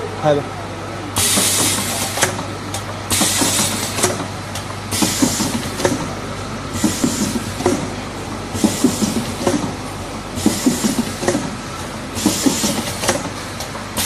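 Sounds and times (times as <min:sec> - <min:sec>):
pneumatic air hissing: 0:01.2 - 0:02.3, 0:03.1 - 0:04.2, 0:04.9 - 0:05.9, 0:06.7 - 0:07.8, 0:08.6 - 0:09.6, 0:10.4 - 0:11.5, 0:12.2 - 0:13.3
machine clicks and knocks: 0:01.2 - 0:08.0, 0:08.6 - 0:09.8, 0:10.4 - 0:14.0
steady low machine hum: 0:01.8 - 0:14.0.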